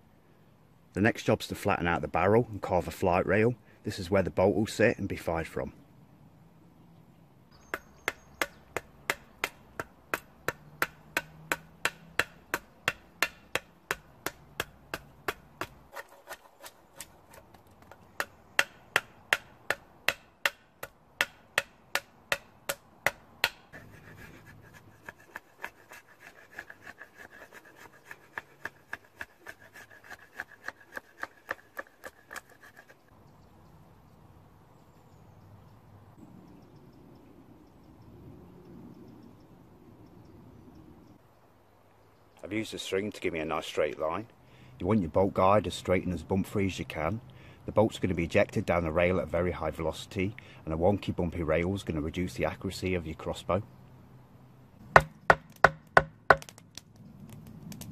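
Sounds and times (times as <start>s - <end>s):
blade batoned into wood knocking: 55.0s - 56.6s.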